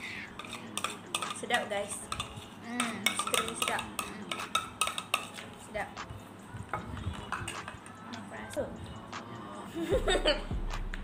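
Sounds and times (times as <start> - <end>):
spoons scraping plastic plates: 0.0 - 5.8.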